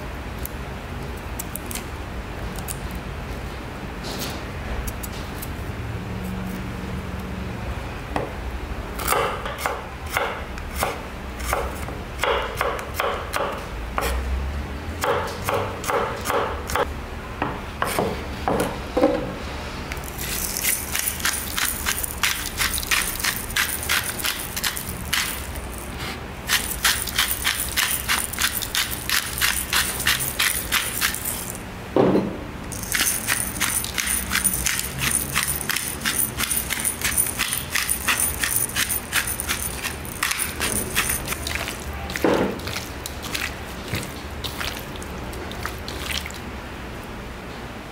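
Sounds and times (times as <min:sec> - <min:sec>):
pepper mill grinding: 0:20.0 - 0:31.6, 0:32.7 - 0:44.8.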